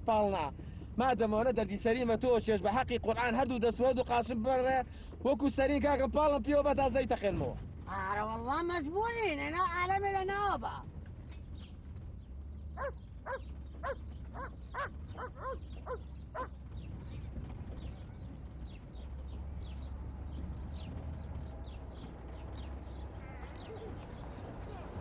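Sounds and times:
car engine rumble: 0.0 - 25.0
bird chirps: 11.3 - 25.0
dog barking: 12.8 - 16.5.

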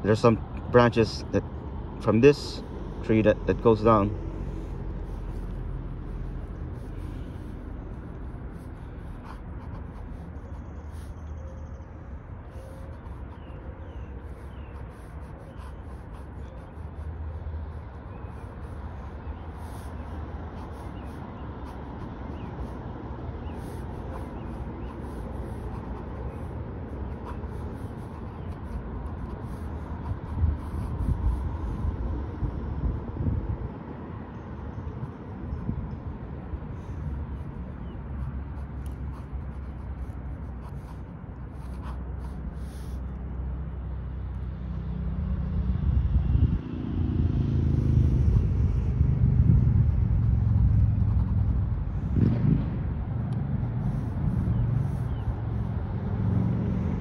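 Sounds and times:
steady low rumble: 0.0 - 12.4, 47.8 - 57.0
outdoor rumble: 1.3 - 57.0
pen scratching on paper: 3.2 - 11.4, 12.4 - 32.6, 34.8 - 43.2, 49.2 - 52.2, 53.2 - 55.8.

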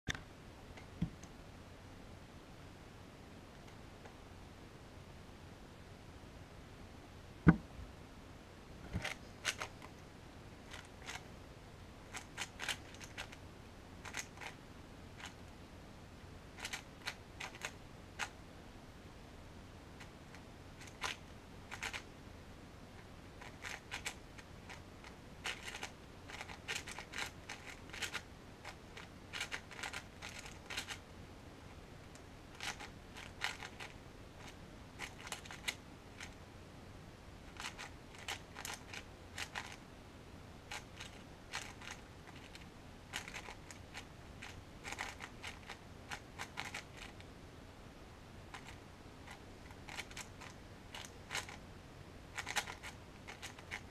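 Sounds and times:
speed cube plastic clicks: 9.0 - 9.9, 12.1 - 13.4, 14.0 - 14.6, 16.6 - 18.4, 20.8 - 22.1, 23.4 - 24.8, 25.4 - 31.0, 32.6 - 36.4, 37.6 - 39.8, 40.7 - 47.2, 48.6 - 51.6, 52.4 - 53.9.

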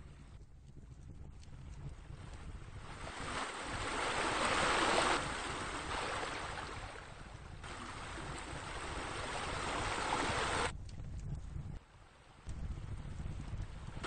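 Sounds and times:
rushing water: 2.8 - 10.7
low steady rumble: 6.8 - 14.0.

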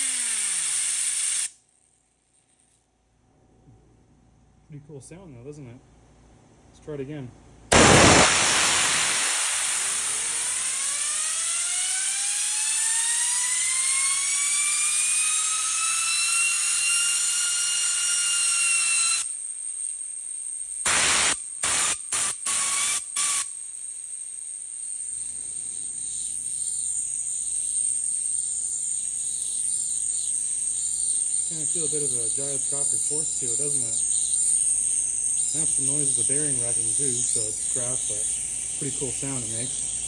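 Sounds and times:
compressed air hissing: 0.0 - 1.5, 7.7 - 11.3, 20.9 - 23.5
short air blasts: 7.7 - 11.5, 20.8 - 23.5
bearing whine rising in pitch: 7.7 - 20.0.

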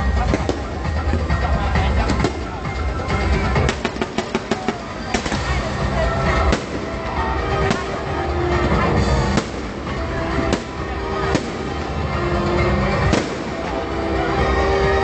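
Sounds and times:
music playing: 0.0 - 15.0
fireworks bangs: 3.6 - 12.1, 12.9 - 14.0.

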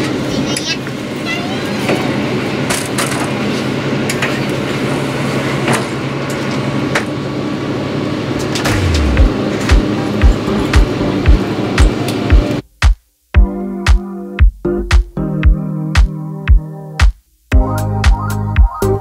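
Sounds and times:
diesel railcar engine hum: 0.0 - 12.7
music beat of low thuds: 8.7 - 19.0.

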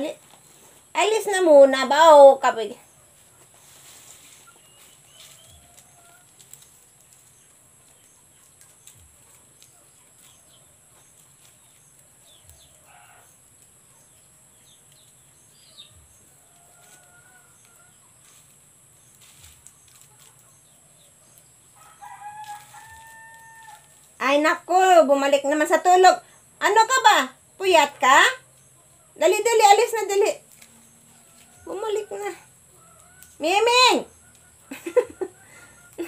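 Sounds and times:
dried leaves rustling: 0.0 - 36.0.

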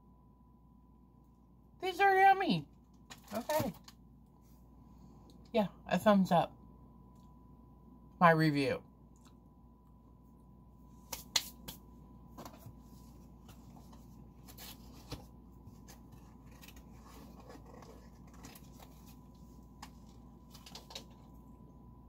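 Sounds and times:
snack packaging crinkling: 15.9 - 21.3.

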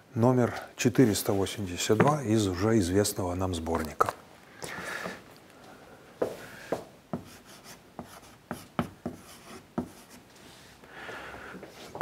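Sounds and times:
chalk tapping and scraping: 6.7 - 10.3.

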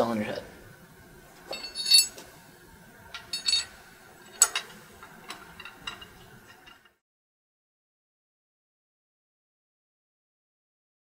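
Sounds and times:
light metallic clinks: 1.5 - 2.3, 3.1 - 6.9.

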